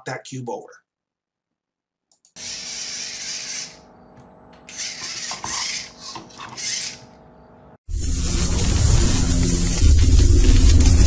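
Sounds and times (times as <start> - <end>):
robot motors whirring: 2.4 - 3.8, 4.6 - 7.2.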